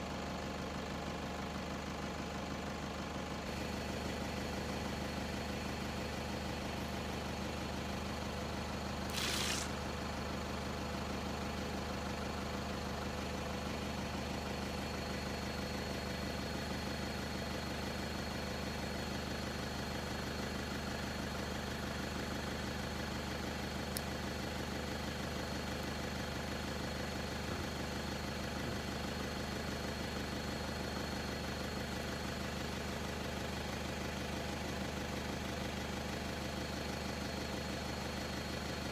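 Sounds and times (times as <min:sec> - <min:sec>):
vehicle engine idling: 0:00.0 - 0:38.9
brief hissing burst: 0:09.1 - 0:09.8.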